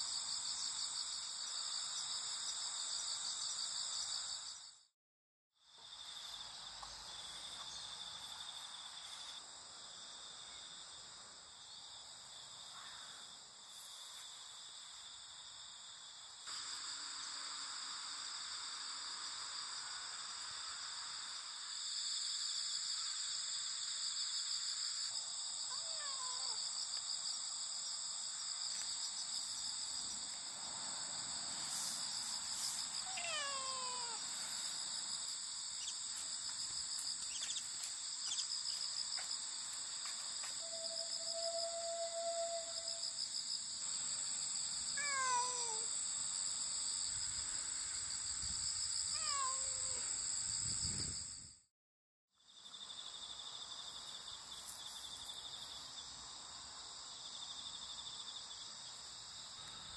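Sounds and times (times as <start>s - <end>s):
crickets and insects trilling: 5.7s - 51.6s, 52.5s - 59.9s
cat meowing: 25.7s - 26.6s, 33.0s - 34.3s, 45.0s - 45.9s, 49.1s - 50.1s.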